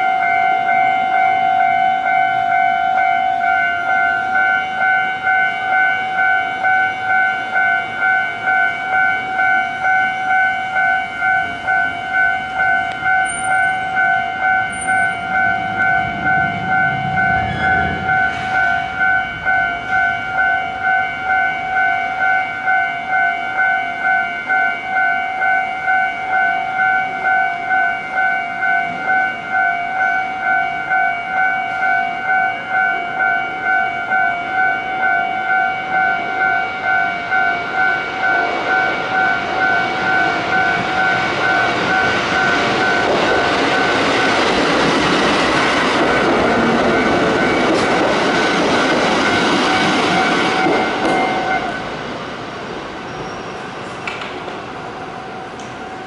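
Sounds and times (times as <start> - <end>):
level crossing bell ringing: 0.0 - 44.1
electric train passing: 0.0 - 56.0.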